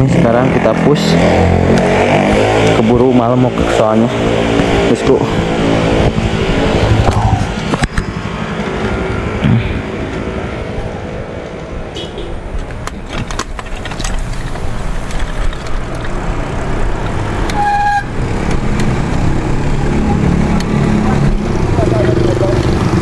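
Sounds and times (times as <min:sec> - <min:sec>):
motorbikes on road: 0:00.0 - 0:23.0
wind rushing over microphone: 0:04.3 - 0:17.5
vehicle horn toot: 0:11.9 - 0:12.4, 0:17.5 - 0:18.1.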